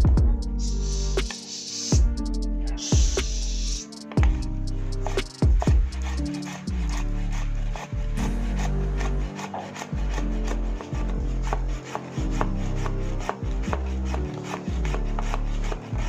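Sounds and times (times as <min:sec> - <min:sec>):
knife chopping on wooden board: 0:09.0 - 0:15.4.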